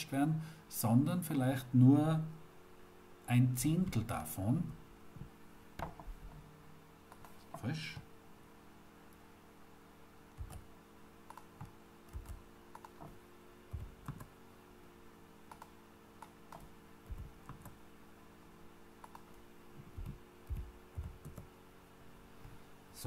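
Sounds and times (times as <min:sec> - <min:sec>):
faint steady hum: 0:00.0 - 0:23.0
mouse clicks: 0:07.1 - 0:07.5, 0:10.4 - 0:10.7, 0:11.3 - 0:13.1, 0:13.8 - 0:14.3, 0:15.5 - 0:17.8, 0:19.0 - 0:19.4
keyboard keys tapping: 0:10.4 - 0:10.7, 0:11.3 - 0:14.3, 0:15.5 - 0:17.8, 0:19.0 - 0:21.5.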